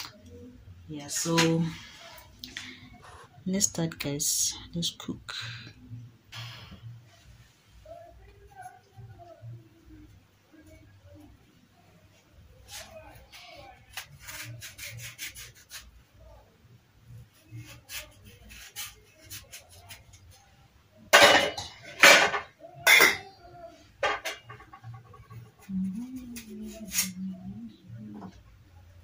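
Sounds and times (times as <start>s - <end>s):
knife scraping squash skin: 13.7s - 15.9s, 17.3s - 20.2s, 25.6s - 27.2s.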